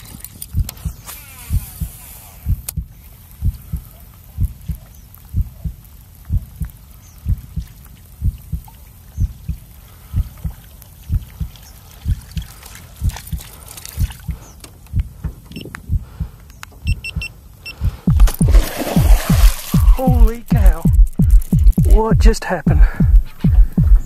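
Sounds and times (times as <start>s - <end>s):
open water: 0.0s - 3.2s, 7.6s - 15.7s, 18.1s - 20.6s
heartbeat thumps: 0.5s - 24.0s.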